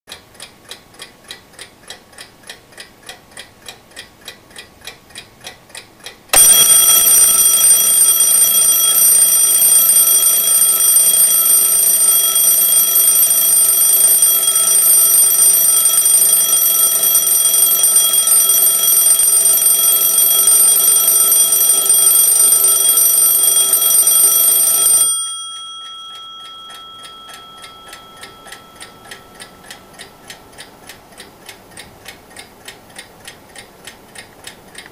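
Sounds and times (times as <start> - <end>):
clock ticking: 0.1 - 34.9
alarm clock bell ringing: 6.4 - 30.6.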